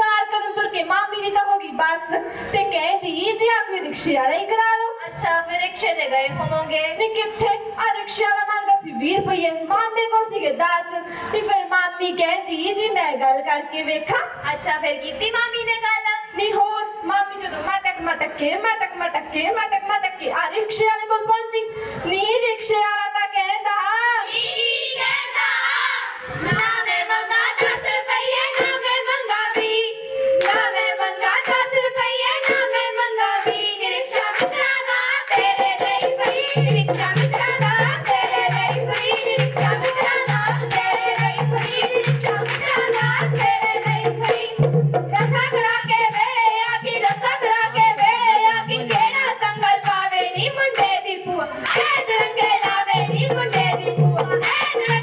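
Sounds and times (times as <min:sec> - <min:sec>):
girls singing folk song: 0:24.3 - 0:55.0
rhythmic hand clapping: 0:26.5 - 0:55.0
steady drum beat: 0:31.2 - 0:50.7, 0:51.7 - 0:55.0.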